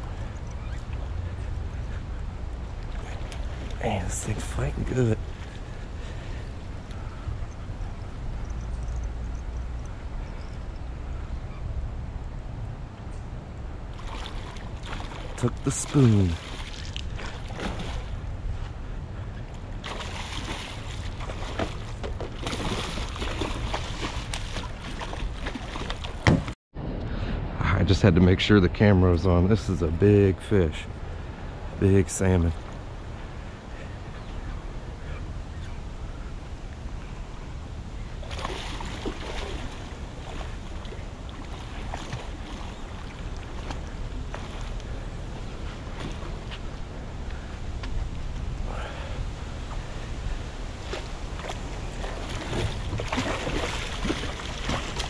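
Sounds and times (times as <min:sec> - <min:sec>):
fish splashing at water surface: 0:14.0 - 0:18.2, 0:19.8 - 0:26.5, 0:38.2 - 0:44.8, 0:50.8 - 0:55.0
wind rumble on microphone: 0:16.4 - 0:55.0.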